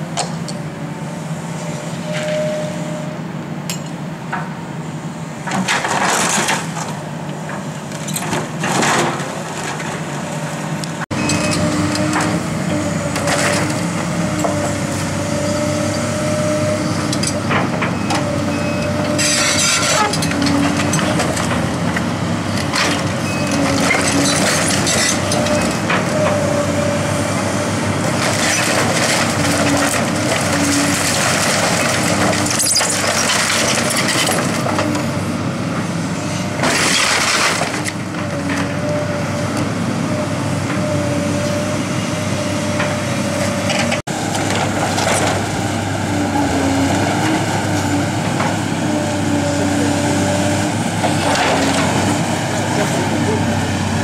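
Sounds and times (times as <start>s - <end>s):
diesel engine running: 0.0s - 54.0s
wood and masonry crashing down: 36.6s - 37.9s.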